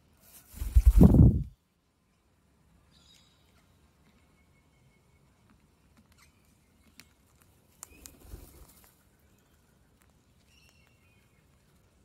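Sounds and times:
bird rustling flurry: 0.2 - 1.5, 7.3 - 9.1.

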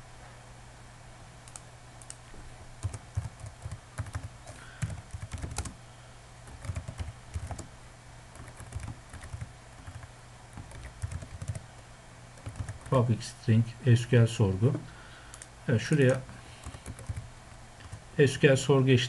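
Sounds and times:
computer keyboard typing: 2.8 - 5.8, 6.5 - 7.7, 8.3 - 11.6, 12.4 - 13.0, 15.3 - 18.0.

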